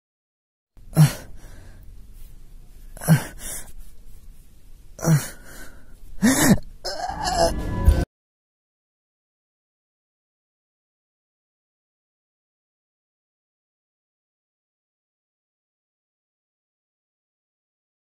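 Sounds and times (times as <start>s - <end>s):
man gasping and groaning: 0.8s - 1.8s, 2.9s - 3.8s, 5.0s - 7.7s.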